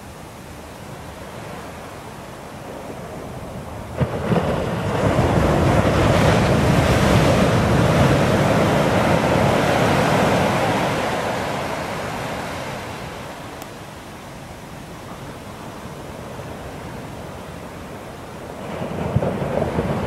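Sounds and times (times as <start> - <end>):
ocean waves breaking on beach: 0.0 - 20.0
wind rumble on microphone: 0.6 - 13.6, 15.0 - 20.0.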